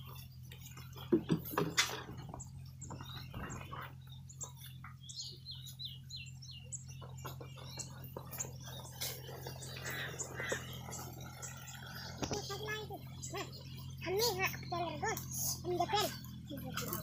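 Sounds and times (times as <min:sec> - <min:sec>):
birds chirping: 0:00.0 - 0:17.0
steady low hum: 0:00.0 - 0:17.0.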